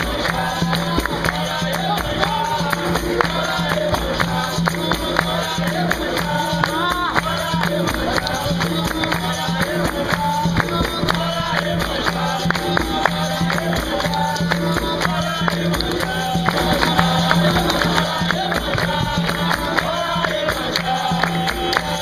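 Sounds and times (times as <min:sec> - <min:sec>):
group singing in chorus: 0:00.0 - 0:22.0
hand clapping: 0:00.0 - 0:22.0
hand drum beat: 0:00.0 - 0:22.0
tambourine jingles: 0:00.0 - 0:22.0.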